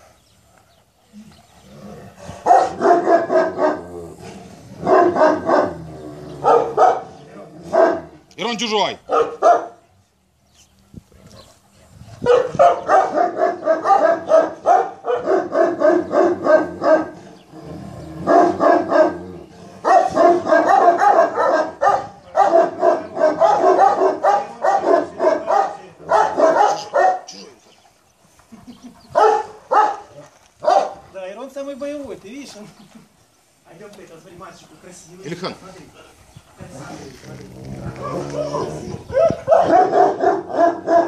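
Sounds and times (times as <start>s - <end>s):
dog barking deeply: 2.2s - 8.2s, 9.0s - 9.8s, 12.2s - 27.5s, 29.1s - 31.0s, 37.5s - 41.0s.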